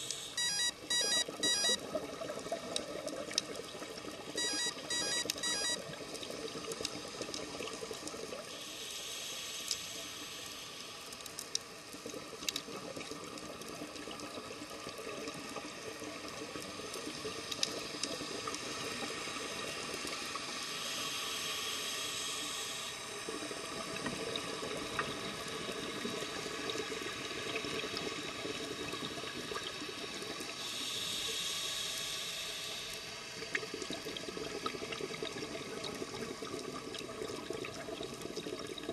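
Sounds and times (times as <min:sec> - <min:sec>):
regulator breathing hiss: 0:08.5 - 0:11.1, 0:20.8 - 0:23.0, 0:30.6 - 0:33.2.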